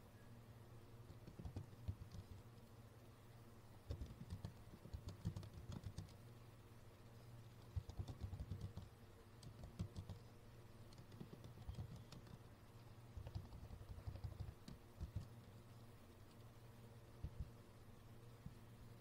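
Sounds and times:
low steady hum: 0.0 - 19.0
keyboard typing: 1.1 - 2.5, 3.9 - 6.2, 7.6 - 10.3, 10.9 - 12.5, 13.2 - 15.6.

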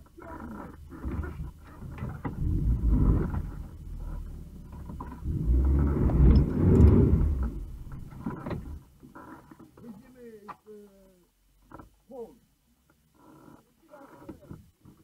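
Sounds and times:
suv engine running: 0.0 - 9.0.

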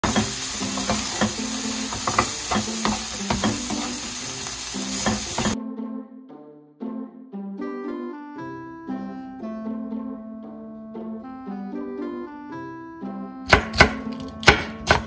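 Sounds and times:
food sizzling in oil: 0.0 - 5.6
spatula scraping pan: 0.0 - 5.6
light instrumental music: 0.0 - 15.0.

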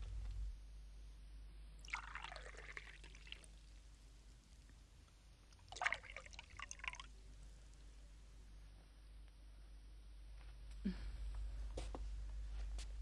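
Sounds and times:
sparkling wine fizzing pour: 1.8 - 3.8, 5.6 - 7.1.

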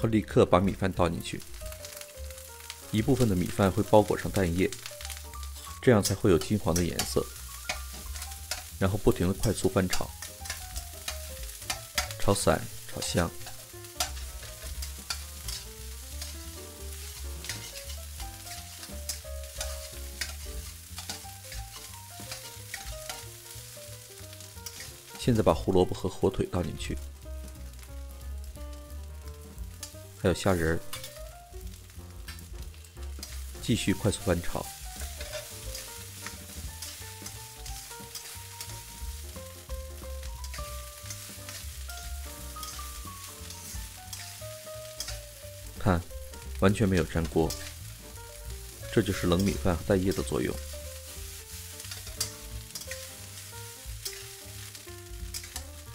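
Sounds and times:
frying sizzle: 0.0 - 55.9
soft background music: 0.0 - 55.9
metal spatula scraping a wok: 5.0 - 8.8, 9.5 - 12.2, 13.4 - 25.2, 33.1 - 33.6, 34.2 - 39.3, 40.2 - 48.1, 49.0 - 55.9.

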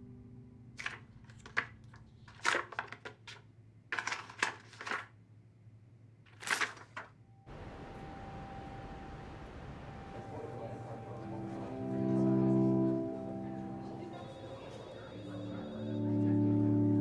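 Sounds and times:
paper crinkling and rustling: 0.8 - 5.2, 6.3 - 7.2
steady outdoor hiss: 7.5 - 17.0.

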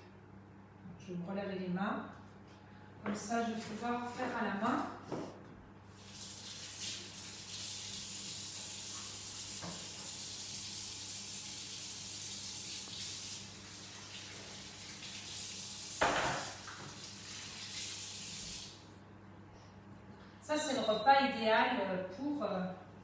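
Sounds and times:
tap running into sink: 9.5 - 10.2, 16.0 - 17.0.

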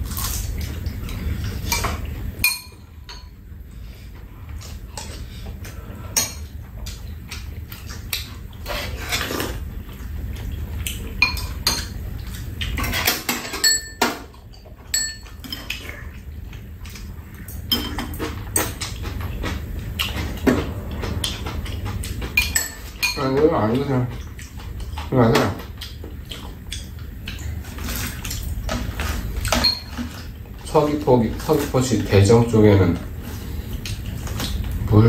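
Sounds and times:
utensils clinking against ceramic bowls: 1.7 - 3.4, 11.2 - 12.0, 12.8 - 15.8, 17.4 - 18.9, 22.3 - 24.2, 28.7 - 32.2.

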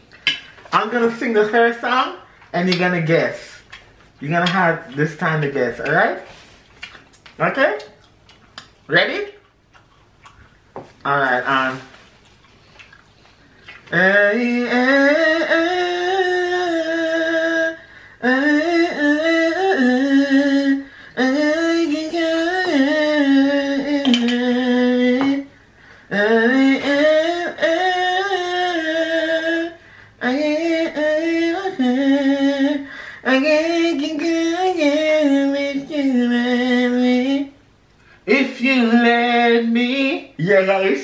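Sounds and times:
man singing unaccompanied: 13.8 - 37.6, 38.2 - 41.0.

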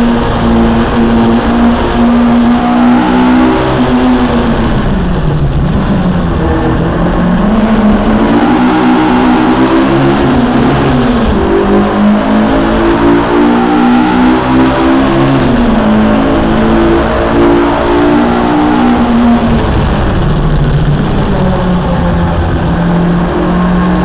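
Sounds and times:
car engine revving: 0.0 - 24.0
road and wind noise: 0.0 - 24.0.

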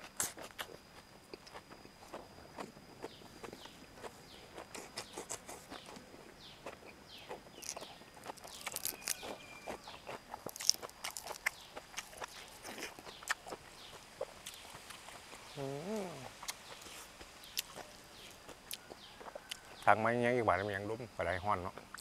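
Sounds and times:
wet chewing and lip-smacking: 0.0 - 19.9
crunchy bites of greens: 0.0 - 20.2.

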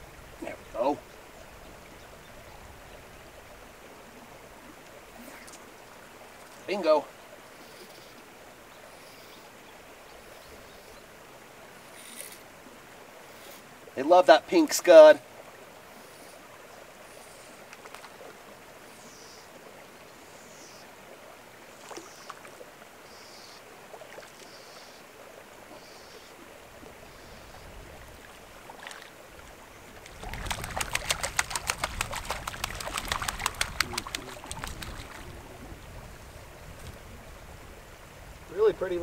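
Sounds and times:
faint running water: 0.0 - 39.0
fish splashing at water surface: 30.0 - 35.3.

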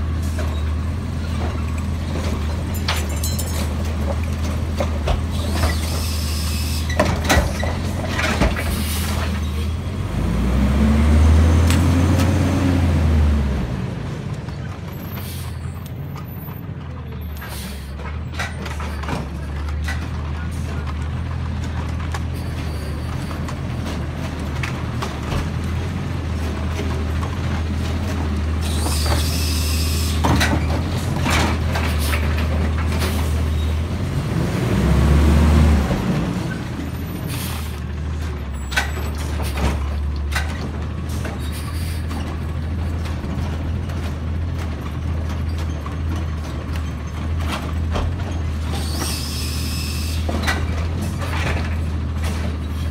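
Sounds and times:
knocks and clatter from truck body: 1.3 - 5.9, 6.9 - 9.6, 18.0 - 29.3, 30.2 - 33.3, 38.0 - 48.8, 50.2 - 52.9
garbage truck engine running: 18.1 - 52.9.

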